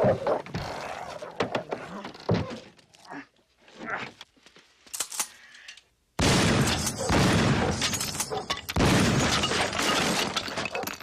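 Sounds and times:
shotgun blasts: 6.2s - 7.8s, 8.8s - 9.6s.

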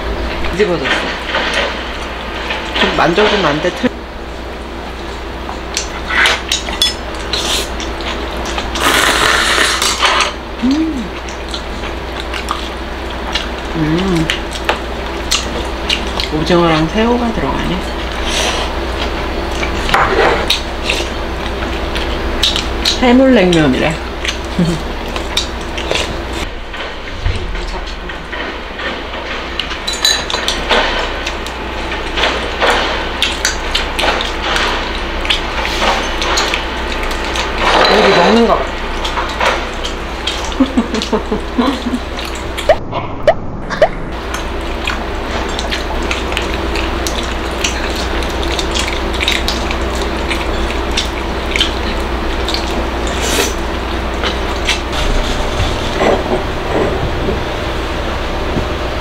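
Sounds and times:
steady low hum: 0.0s - 59.0s
dog chewing crunchy treat: 23.6s - 42.7s, 44.2s - 56.6s.

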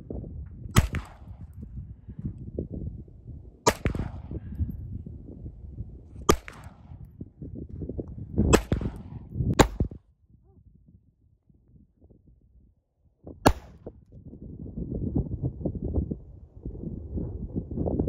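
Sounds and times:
pistol shots: 0.8s - 1.5s, 3.7s - 4.4s, 6.3s - 7.0s, 8.5s - 10.0s, 13.5s - 13.8s.

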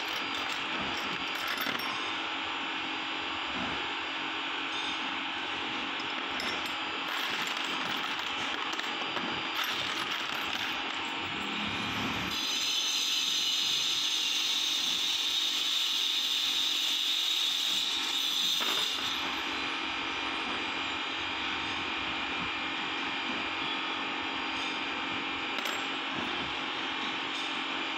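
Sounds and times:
metal bolts clicking in tub: 0.0s - 2.0s, 6.0s - 11.2s, 25.6s - 26.0s.

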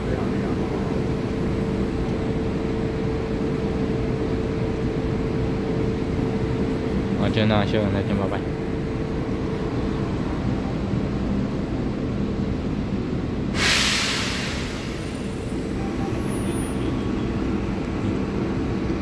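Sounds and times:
electric locomotive humming: 0.0s - 19.0s
compressed air hiss: 13.6s - 15.3s.

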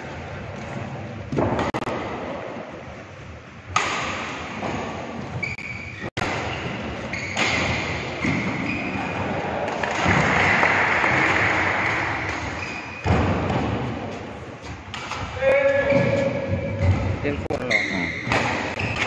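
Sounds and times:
rackets hitting shuttlecock: 3.7s - 5.0s, 6.2s - 13.9s, 14.8s - 17.0s, 18.2s - 19.0s
shoes squeaking on court: 4.8s - 9.2s, 11.8s - 14.9s, 15.9s - 19.0s.

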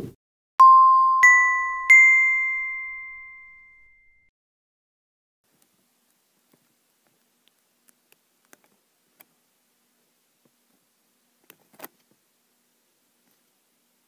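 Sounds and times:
faint steady hum: 5.5s - 14.0s.

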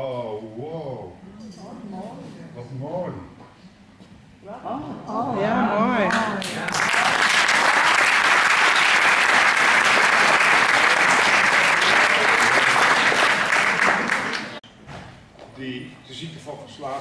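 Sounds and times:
audience applauding: 6.1s - 14.6s.

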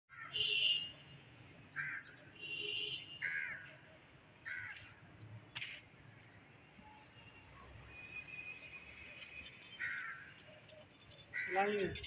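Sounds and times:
crows cawing: 0.1s - 0.4s, 1.8s - 2.2s, 3.2s - 3.7s, 4.4s - 5.0s, 9.8s - 10.4s, 11.3s - 12.0s.

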